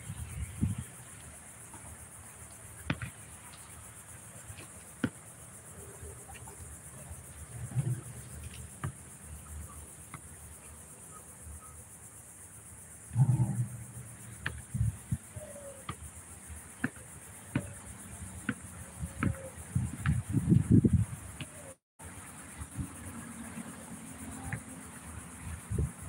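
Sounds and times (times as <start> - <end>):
high-pitched insect chorus: 0.0 - 26.0
basketball bouncing and hitting hoop: 8.8 - 9.0, 14.4 - 14.9, 16.8 - 17.8, 19.2 - 20.7.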